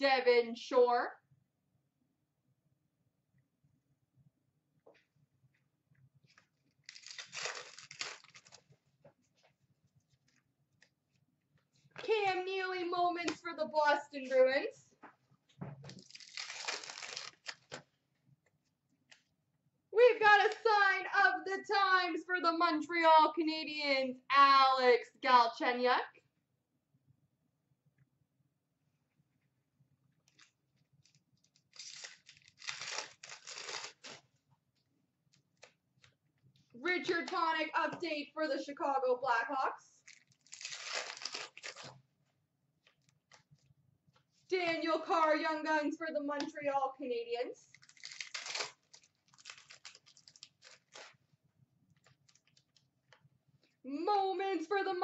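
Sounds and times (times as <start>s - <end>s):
foil wrapper tearing: 6.8s - 8.6s, 15.9s - 17.8s, 30.3s - 34.2s, 40.0s - 42.0s, 47.7s - 51.2s, 52.0s - 52.7s.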